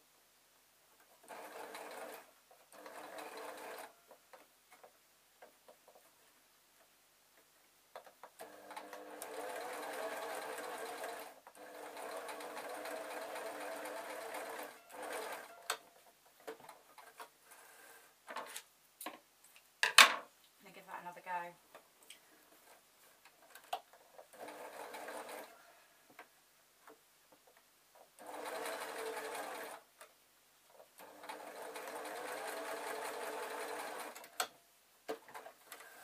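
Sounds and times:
electric sewing machine stitching: 0:01.2 - 0:03.9, 0:08.4 - 0:15.6, 0:24.3 - 0:25.5, 0:28.2 - 0:29.8, 0:31.0 - 0:34.4.

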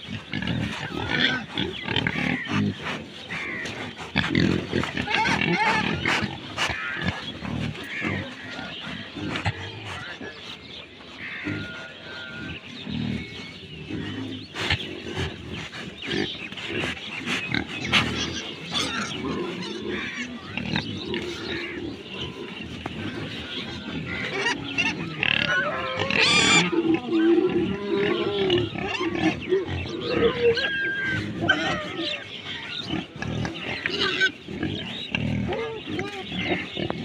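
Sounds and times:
pigs grunting: 0:00.0 - 0:37.0
pig call: 0:23.2 - 0:33.2.

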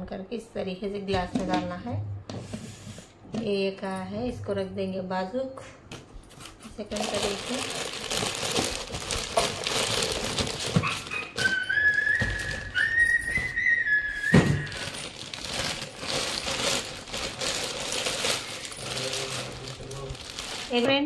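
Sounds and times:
packaging rustling and clicking: 0:06.3 - 0:13.6, 0:14.3 - 0:21.0
whistle-like tone: 0:11.1 - 0:15.1.

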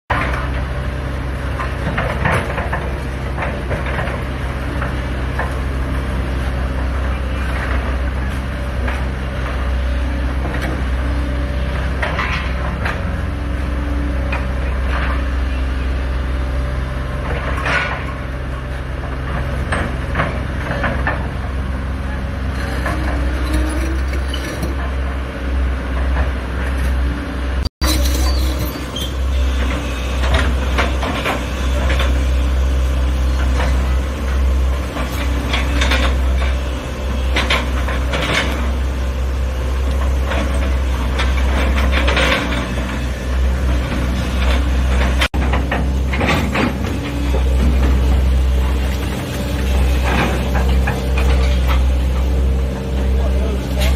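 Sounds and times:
excavator diesel engines: 0:00.1 - 0:53.9
concrete crunching and clattering: 0:22.4 - 0:25.1.

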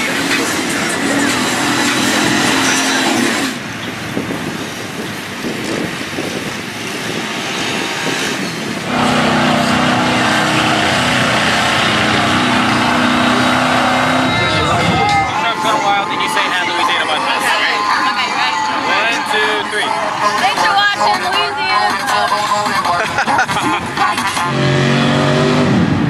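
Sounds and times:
truck engines revving: 0:00.0 - 0:26.0.

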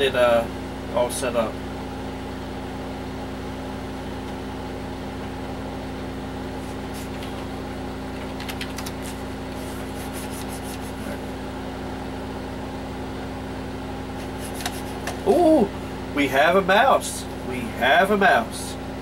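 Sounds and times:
desktop computer hum: 0:00.0 - 0:19.0
keyboard keystrokes clacking: 0:08.1 - 0:09.0.

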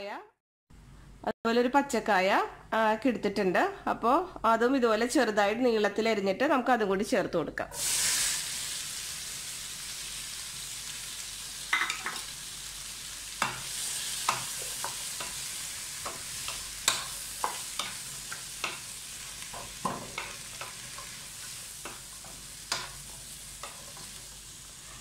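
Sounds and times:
vegetables sizzling in oil: 0:07.7 - 0:25.0.

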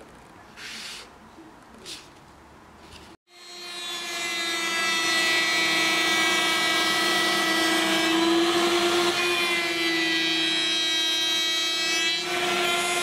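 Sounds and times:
router whining while cutting wood: 0:03.3 - 0:13.0.

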